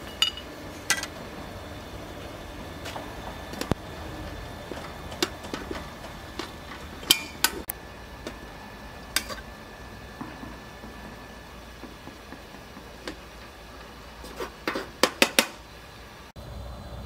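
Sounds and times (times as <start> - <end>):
ladle clinking in metal pot: 0.0 - 1.1, 6.4 - 7.6.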